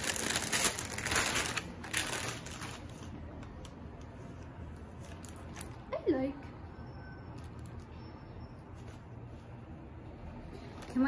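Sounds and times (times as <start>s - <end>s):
plastic bag crinkling: 0.0s - 3.2s.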